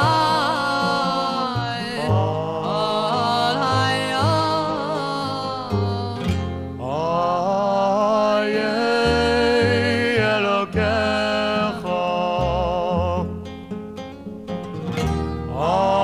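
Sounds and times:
male vocal group harmonizing: 0.0s - 13.4s, 15.5s - 16.0s
acoustic guitar: 0.0s - 16.0s.

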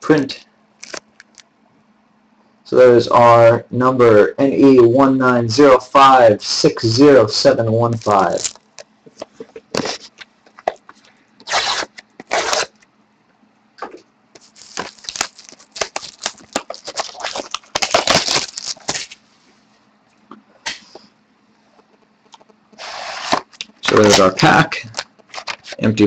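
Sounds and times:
plastic wrap crinkling: 0.8s - 1.4s, 7.9s - 10.2s, 14.4s - 19.2s, 23.5s - 25.8s
plastic wrap ripping: 0.8s - 1.4s, 7.9s - 8.8s, 11.4s - 12.8s, 14.4s - 19.2s, 22.8s - 25.8s.

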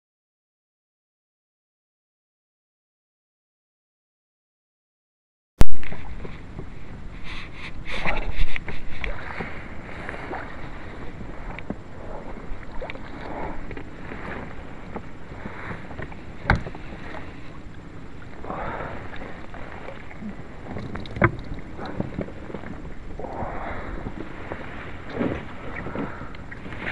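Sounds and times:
flowing water: 5.6s - 26.9s
wind on microphone: 5.6s - 26.9s.

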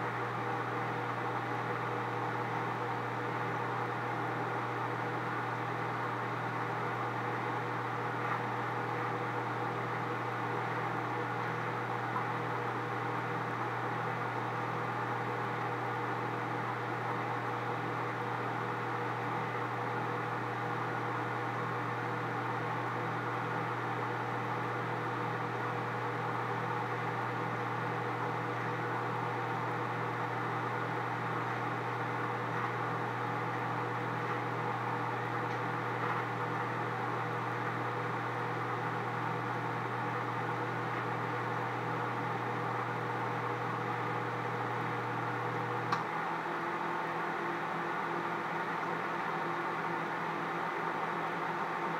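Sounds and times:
microwave fan noise: 0.0s - 51.9s
microwave oven humming: 0.0s - 51.9s
microwave click: 45.8s - 46.1s.

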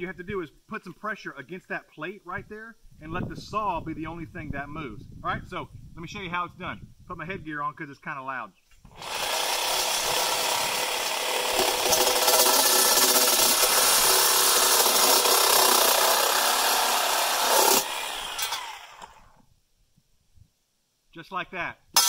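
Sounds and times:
reciprocating saw cutting metal: 8.9s - 19.4s.

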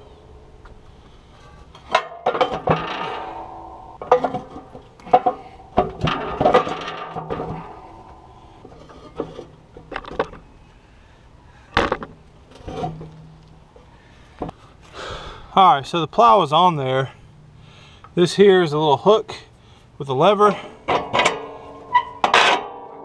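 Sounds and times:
metal scraping: 1.2s - 10.5s, 11.9s - 13.7s, 20.5s - 23.0s
metal ringing: 1.7s - 10.0s
metal parts clanking and knocking: 1.8s - 10.4s, 20.6s - 22.8s.

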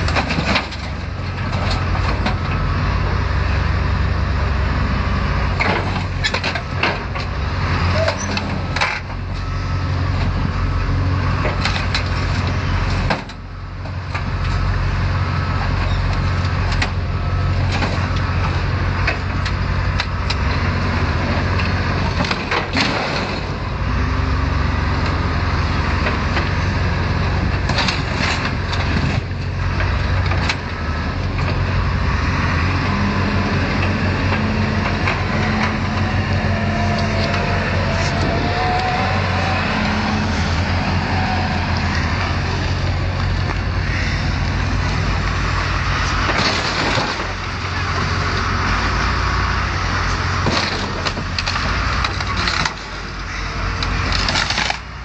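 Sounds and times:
diesel engine under load: 0.0s - 55.0s
metal cracking and crunching: 21.4s - 23.6s, 27.5s - 31.8s, 44.5s - 48.9s, 50.0s - 55.0s.

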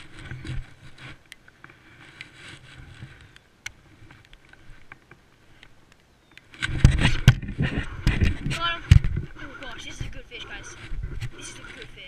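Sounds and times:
wind rumble on microphone: 0.0s - 5.0s, 6.5s - 12.0s.

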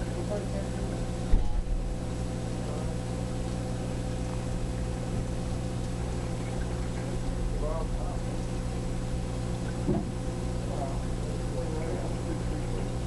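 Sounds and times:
aquarium equipment humming: 0.0s - 13.0s
dull bump: 9.8s - 10.2s.

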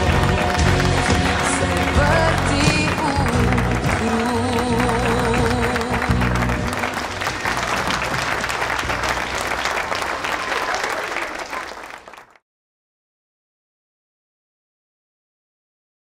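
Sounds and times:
music: 0.0s - 10.9s
audience applauding: 0.0s - 12.4s.

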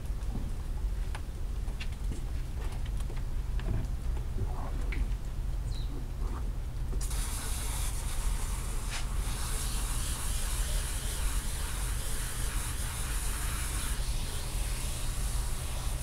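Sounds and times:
water spray hissing: 7.0s - 16.0s
pressure washer humming: 8.2s - 16.0s.

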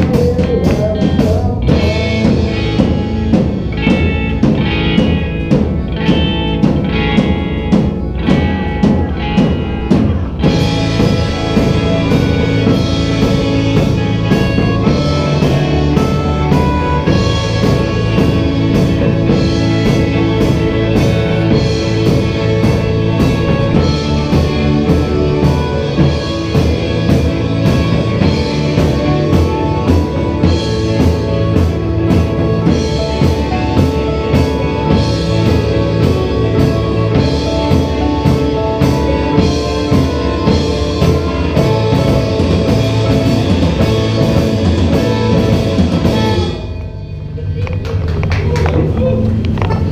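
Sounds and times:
live rock band playing: 0.0s - 49.9s.

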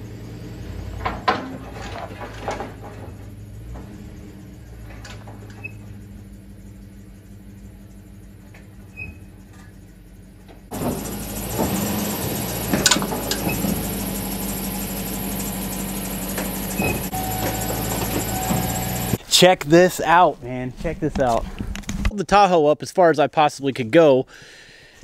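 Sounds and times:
vehicle engine running: 0.0s - 19.2s.

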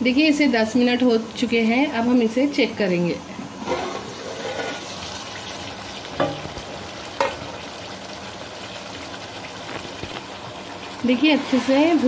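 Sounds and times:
gravy bubbling and sizzling in pot: 0.0s - 12.0s.

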